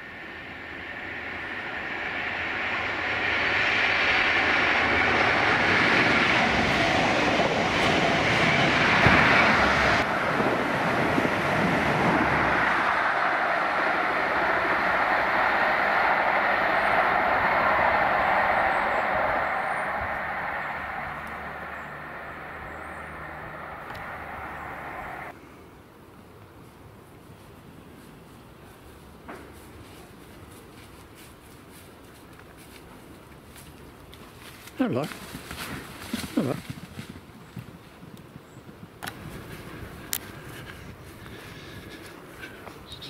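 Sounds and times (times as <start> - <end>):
train diesel engine: 0.0 - 25.4, 39.0 - 43.0
wheel-on-rail noise: 0.0 - 25.4.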